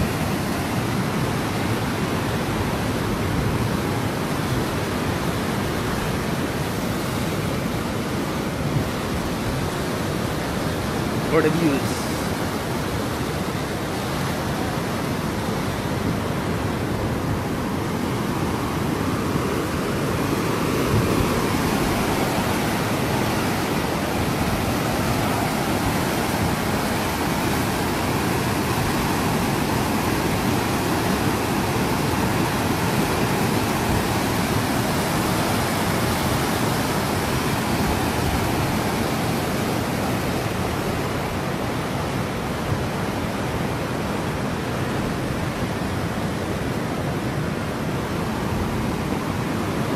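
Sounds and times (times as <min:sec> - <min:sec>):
fast-flowing river rushing: 0:00.0 - 0:49.9.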